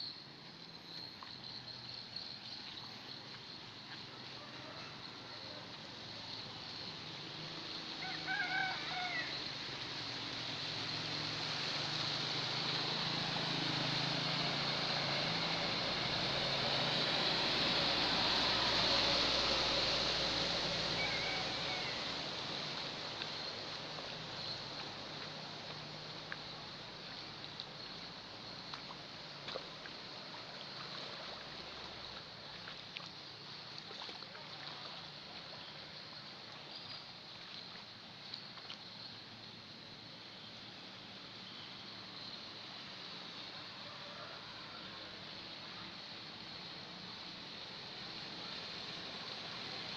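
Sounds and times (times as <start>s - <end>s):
water rushing and splashing: 0.3s - 49.9s
floodwater hissing: 2.4s - 49.9s
rooster crowing: 8.0s - 9.4s, 21.0s - 22.2s, 43.8s - 45.1s
faint ticks: 23.2s - 30.0s.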